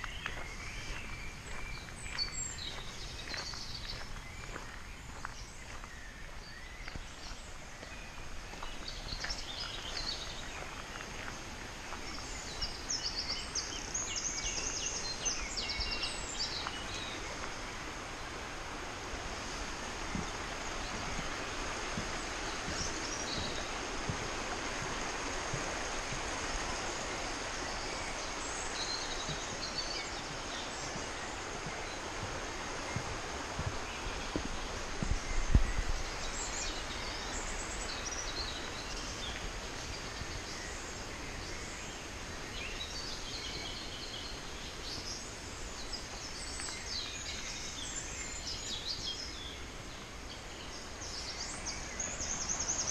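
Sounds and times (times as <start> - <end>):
faint footsteps: 0.0 - 12.8, 16.4 - 40.5
songbirds singing: 0.0 - 52.9
stream rushing: 0.0 - 52.9.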